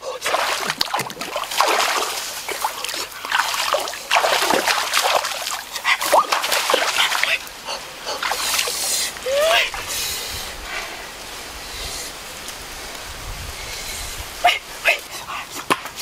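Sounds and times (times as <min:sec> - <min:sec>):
water splashing in stream: 0:00.0 - 0:09.9.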